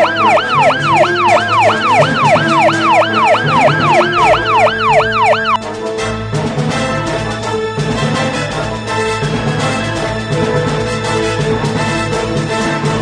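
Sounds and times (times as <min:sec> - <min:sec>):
siren-like warbling: 0:00.0 - 0:05.6
background music: 0:00.0 - 0:13.0.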